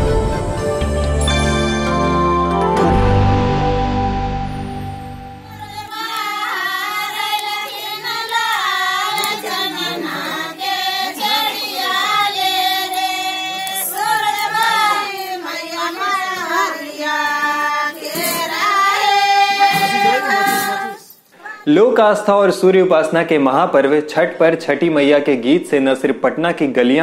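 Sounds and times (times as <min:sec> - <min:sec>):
women singing a folk song: 0:05.5 - 0:21.6.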